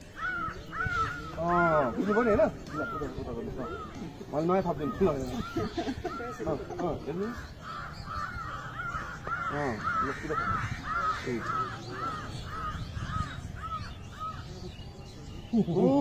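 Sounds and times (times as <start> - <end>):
crow cawing: 0.0 - 14.9
faint men's voices: 0.0 - 16.0.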